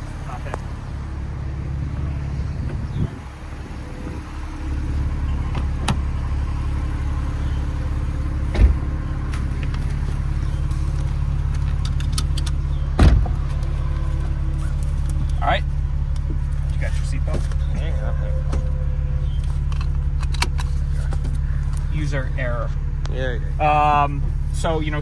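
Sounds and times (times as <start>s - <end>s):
car engine idling: 0.0s - 25.0s
car door thumps: 8.5s - 8.9s, 12.9s - 13.6s.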